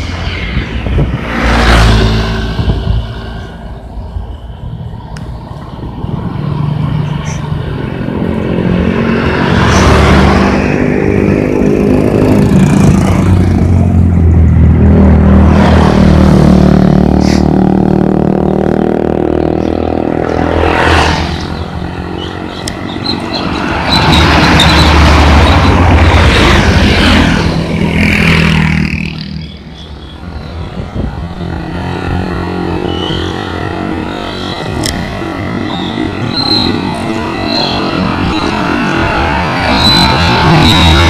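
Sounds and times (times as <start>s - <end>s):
truck driving past loudly: 0.0s - 4.5s
motor scooters passing: 0.0s - 41.0s.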